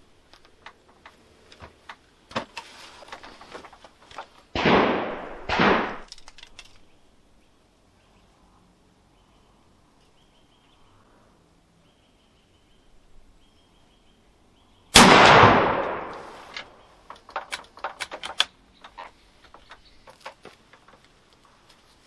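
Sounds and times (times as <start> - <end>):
sharp clicks and knocks: 0.3 - 4.4, 5.9 - 6.9, 15.9 - 21.4
rifle shot with echo: 4.6 - 6.1, 14.9 - 16.8.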